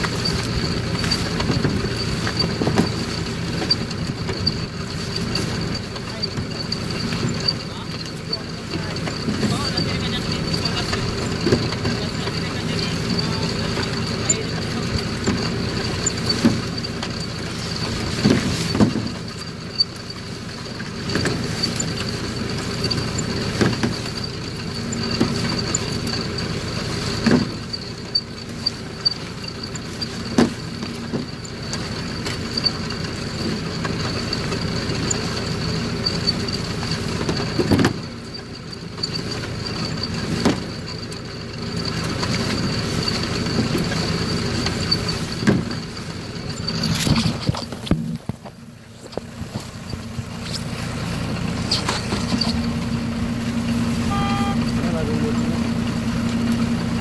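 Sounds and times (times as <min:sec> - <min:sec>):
sharp clicks and knocks: 0:00.0 - 0:56.9
engine running: 0:00.0 - 0:57.0
thin high whine: 0:48.9 - 0:56.9.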